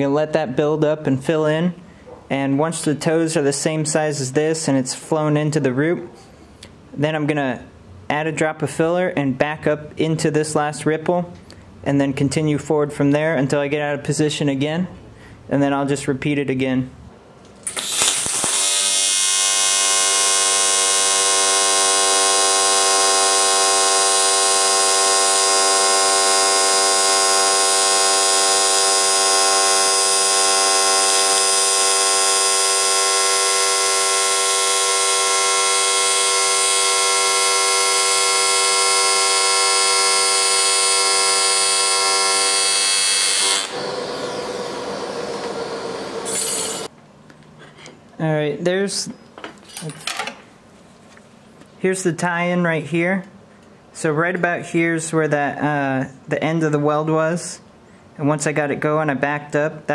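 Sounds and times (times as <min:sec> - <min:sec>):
welding arc buzzing: 0:17.6 - 0:46.9.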